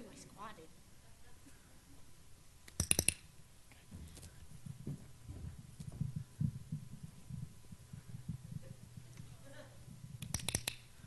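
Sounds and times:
soft low thumps: 3.8s - 10.3s
dog-training clicker clicking: 10.2s - 10.8s.

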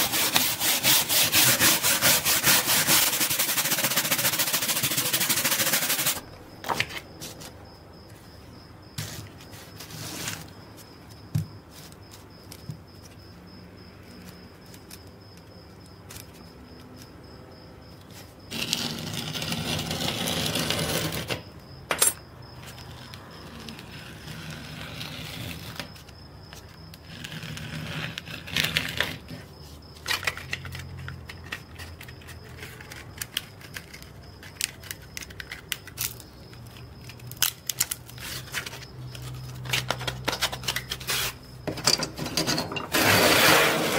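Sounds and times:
sandpaper rustling and scraping: 0.0s - 6.2s, 9.0s - 10.5s, 37.8s - 41.4s, 42.9s - 43.9s.

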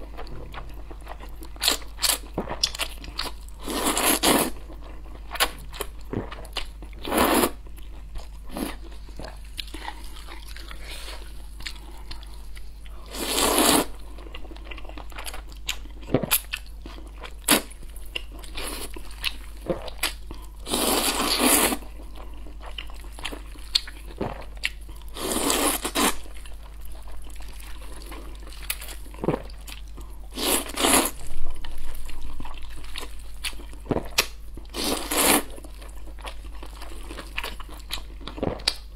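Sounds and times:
person slurping noodles: 13.1s - 13.9s.

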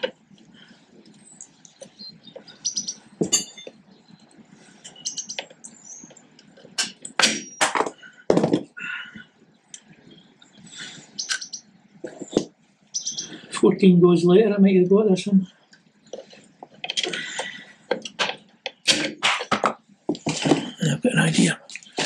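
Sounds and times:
metal clinks and clanks: 3.2s - 3.8s.

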